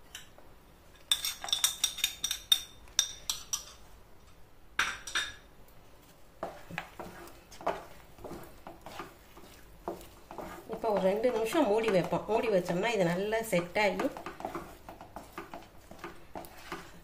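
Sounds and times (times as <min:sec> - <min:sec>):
wooden spatula scraping a pan: 0:06.0 - 0:17.0.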